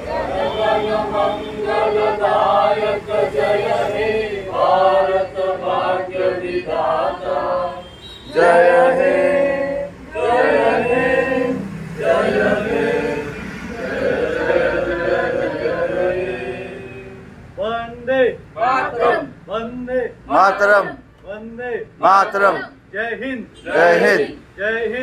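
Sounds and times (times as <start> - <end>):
group singing: 0.0 - 19.7, 20.3 - 21.1, 22.0 - 22.8, 23.6 - 25.0.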